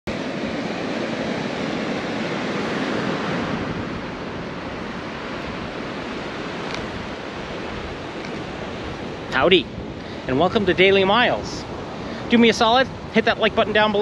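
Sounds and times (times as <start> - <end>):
ocean surf breaking: 0.1 - 14.0
wind buffeting microphone: 0.1 - 14.0.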